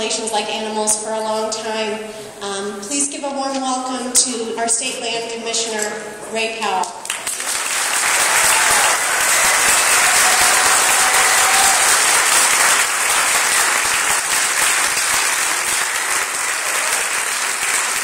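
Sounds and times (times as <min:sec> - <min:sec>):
audience applauding: 0:07.1 - 0:18.0.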